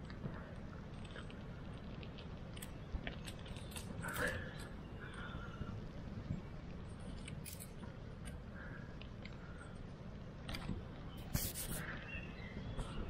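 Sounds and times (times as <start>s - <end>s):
kindling fire crackling: 0.0s - 12.7s.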